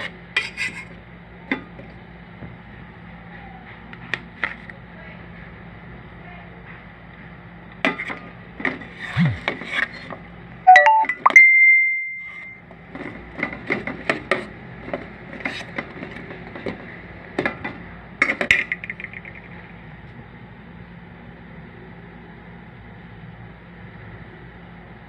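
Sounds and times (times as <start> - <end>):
steady high tone: 9.2 - 9.4, 10.7 - 12.6.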